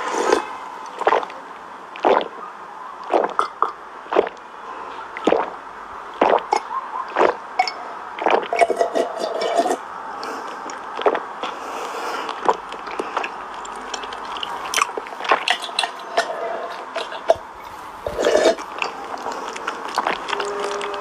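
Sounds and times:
squishy mouth sounds: 0.0s - 2.4s, 3.0s - 8.8s, 10.2s - 16.0s, 16.8s - 21.0s
loud wet gulping swallows: 1.0s - 2.4s, 3.0s - 9.0s, 10.5s - 15.6s, 16.9s - 21.0s
short slurping: 3.0s - 3.5s, 5.1s - 5.6s, 6.2s - 7.4s, 10.2s - 15.6s, 17.1s - 21.0s.

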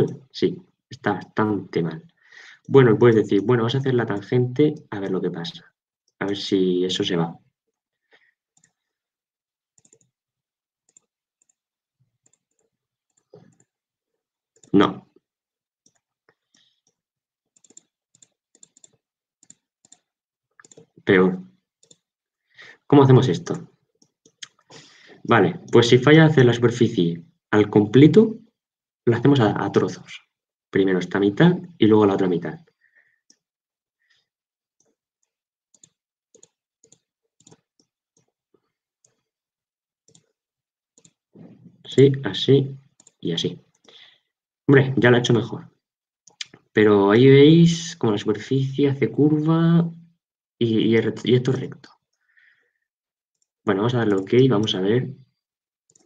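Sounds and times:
mouse and keyboard clicking: 9.8s - 10.1s, 14.6s - 14.8s, 17.6s - 21.0s, 21.8s - 22.0s, 34.8s - 38.3s, 40.1s - 40.4s, 43.0s - 43.2s.

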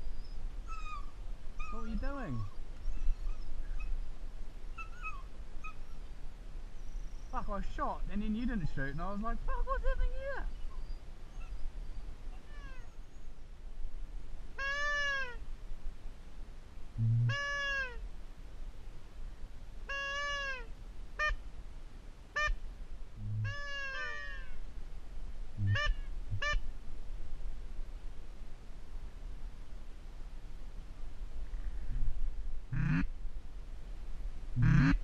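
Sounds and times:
duck calling: 14.6s - 15.4s, 17.0s - 18.0s, 19.9s - 21.4s, 23.2s - 24.6s, 25.6s - 26.6s, 32.7s - 33.1s, 34.6s - 35.0s
steady wind noise: 20.7s - 35.0s.

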